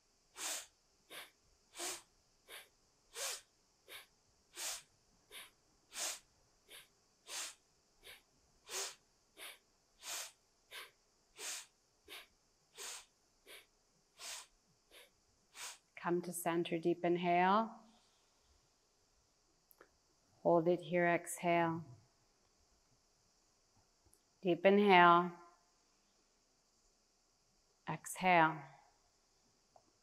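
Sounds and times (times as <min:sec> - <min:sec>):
forceful rhythmic breathing: 0:00.4 - 0:15.9.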